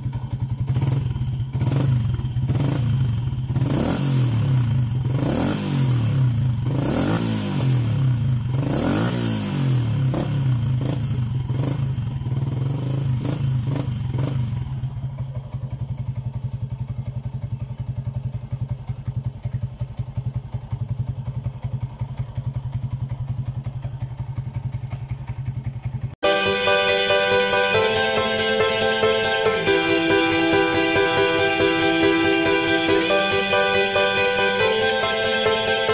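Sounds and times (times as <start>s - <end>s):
motorcycle engine revving and idling: 0.0s - 26.2s.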